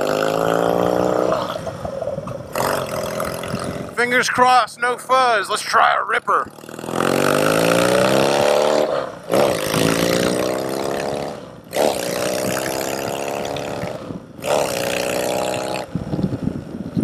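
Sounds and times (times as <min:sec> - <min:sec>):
motorcycle engine accelerating hard: 0:00.0 - 0:04.0, 0:06.4 - 0:17.0.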